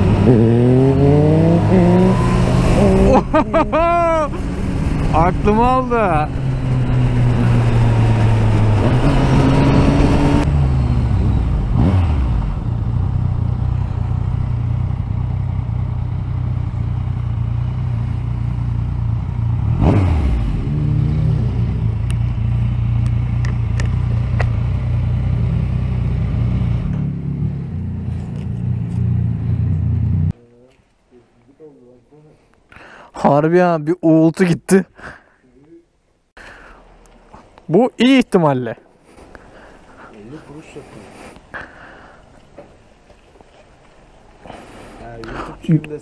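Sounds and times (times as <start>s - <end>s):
motorcycle engine: 0.0s - 30.4s.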